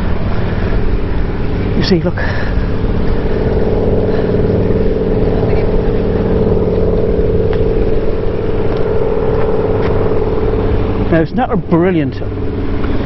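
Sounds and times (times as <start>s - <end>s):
engine drone: 0.0s - 13.0s.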